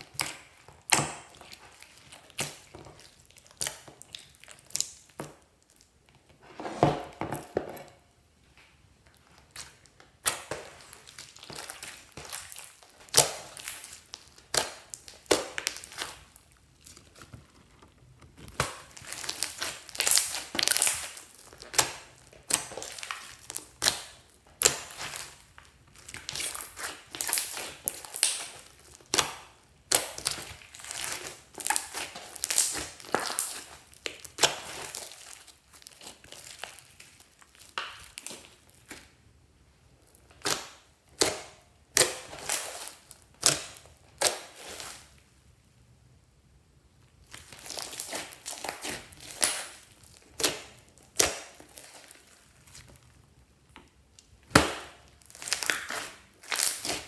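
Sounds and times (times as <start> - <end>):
slime squelching and crackling: 0.0 - 6.4, 8.8 - 45.4, 47.0 - 57.0
slime popping: 9.4 - 25.4, 26.0 - 39.1, 54.2 - 57.0.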